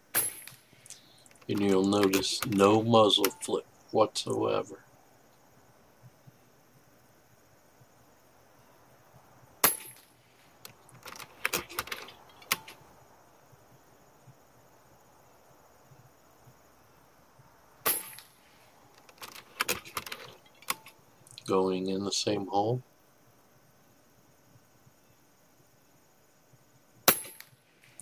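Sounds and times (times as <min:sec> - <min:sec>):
metallic clicks of rifle action: 0:19.0 - 0:21.5.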